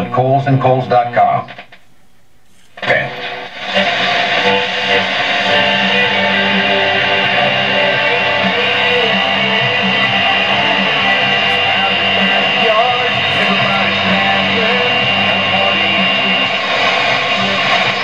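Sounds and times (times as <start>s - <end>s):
guitar music on radio: 2.5s - 18.0s.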